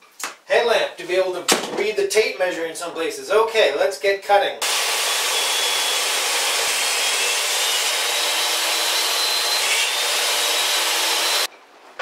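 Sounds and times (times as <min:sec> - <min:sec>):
table saw cutting wood: 0:04.6 - 0:11.5.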